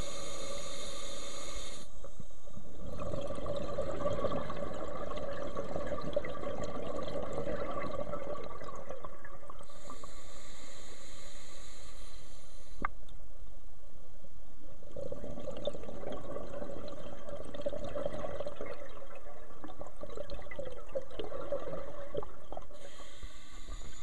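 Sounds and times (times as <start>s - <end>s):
regulator inhalation hiss: 0.0s - 2.0s, 9.7s - 12.8s, 22.8s - 24.0s
bubbles burbling: 2.8s - 9.6s, 14.9s - 22.8s.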